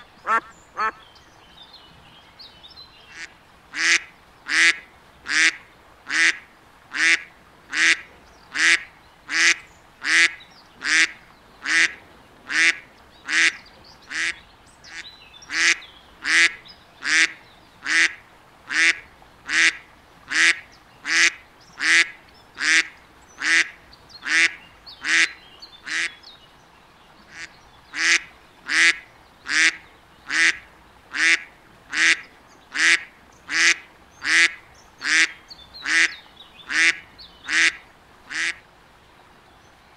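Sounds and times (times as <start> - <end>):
duck quacking: 0.0 - 1.0, 27.3 - 36.1, 36.7 - 38.6.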